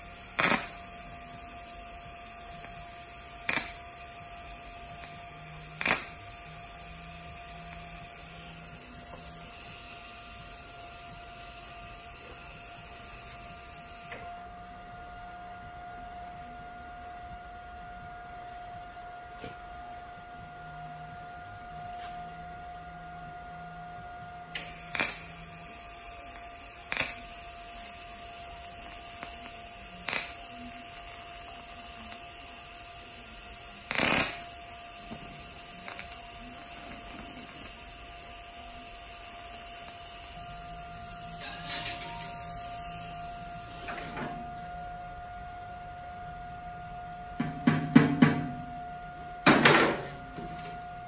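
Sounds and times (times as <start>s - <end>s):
welding arc hissing: 0.0s - 14.2s, 24.6s - 44.1s.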